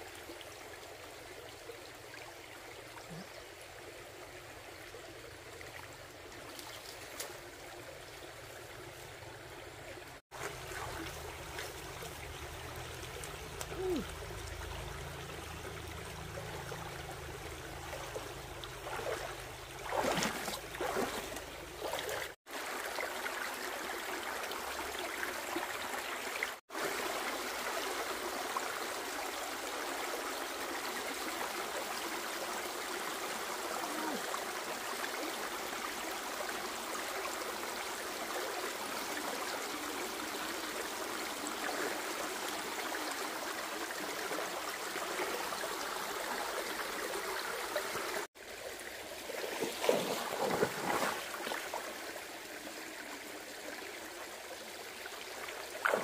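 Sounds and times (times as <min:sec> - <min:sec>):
stream trickling over stones: 0:00.0 - 0:56.0
splashing of someone wading: 0:17.8 - 0:22.6, 0:49.3 - 0:51.9, 0:55.7 - 0:56.0.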